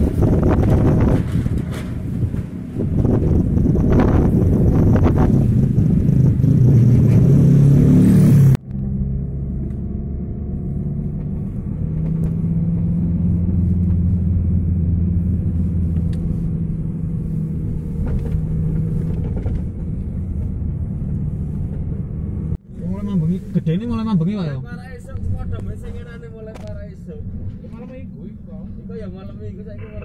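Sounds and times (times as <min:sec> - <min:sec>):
wind noise on microphone: 0:00.0 - 0:08.6
vehicle engine and road noise: 0:00.0 - 0:30.0.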